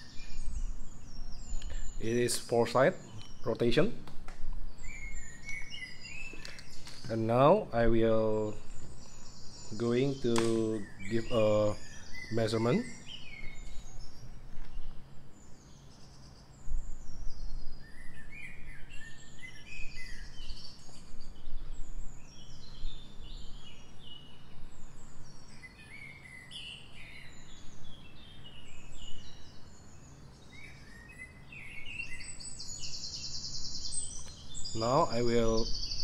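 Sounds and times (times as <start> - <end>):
buzzy bird trill: 0.0 - 4.0, 4.7 - 36.0
birds chirping: 0.0 - 36.0.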